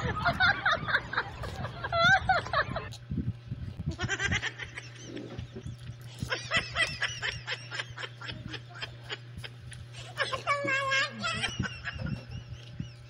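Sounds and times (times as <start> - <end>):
steady low hum: 0.0 - 13.0
mouth chewing noises: 4.8 - 6.4.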